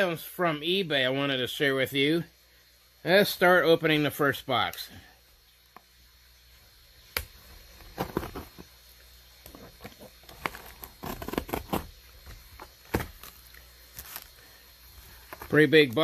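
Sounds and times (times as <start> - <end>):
cardboard box being opened: 7.8 - 8.7, 9.5 - 14.3.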